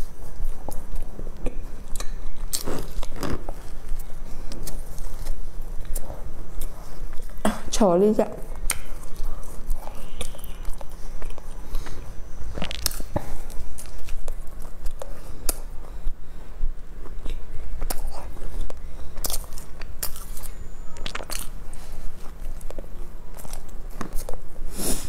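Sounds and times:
chewing bread: 0.0 - 7.4, 8.4 - 24.7
crisp crust crackles: 8.6 - 15.6.

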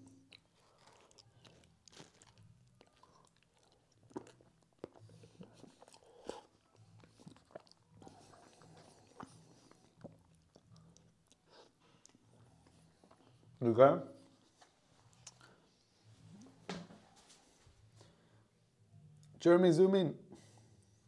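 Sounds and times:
man chewing and lip-smacking: 0.0 - 13.6, 14.4 - 15.5.

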